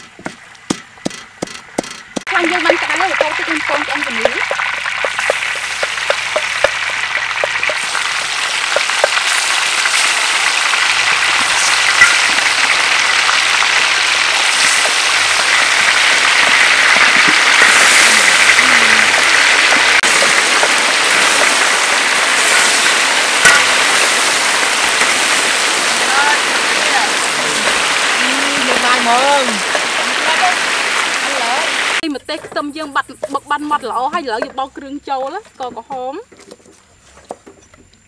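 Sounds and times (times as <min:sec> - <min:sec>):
meat sizzling in hot oil: 0:02.3 - 0:32.0.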